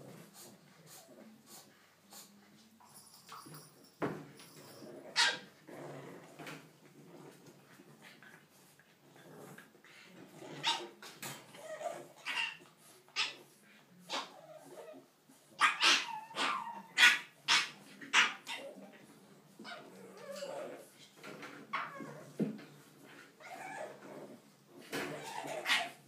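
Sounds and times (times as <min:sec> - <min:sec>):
puppies yipping and barking: 0:15.6 - 0:18.7, 0:25.1 - 0:26.0.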